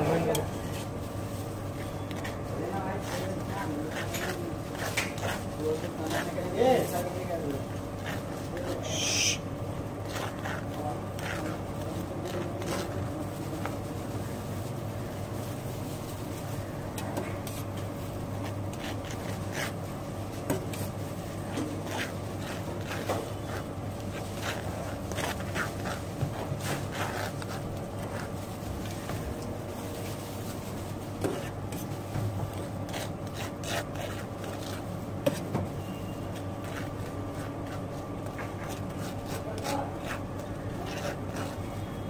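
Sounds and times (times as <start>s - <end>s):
knife scraping toasted bread: 1.9s - 13.0s, 17.4s - 29.0s, 32.5s - 42.0s.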